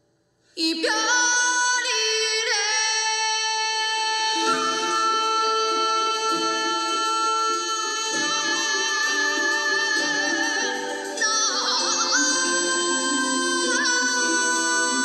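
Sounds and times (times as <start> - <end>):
woman singing with vibrato: 0.6 - 15.0
instrumental accompaniment: 4.3 - 15.0.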